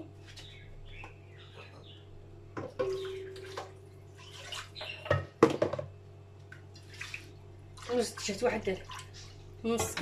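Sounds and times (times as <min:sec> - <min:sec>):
water swishing in a bowl: 0:02.8 - 0:05.0, 0:06.5 - 0:10.0.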